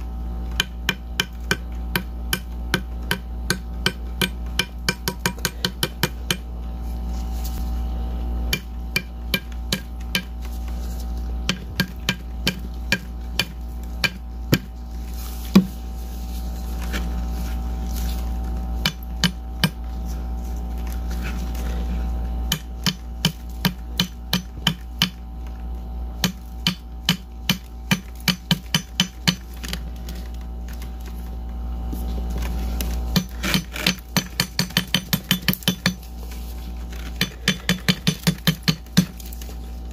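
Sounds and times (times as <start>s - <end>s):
steady low hum: 0.0s - 39.9s
taps on hollow ice: 0.6s - 6.4s, 22.5s - 25.2s, 33.1s - 36.0s, 37.0s - 39.2s.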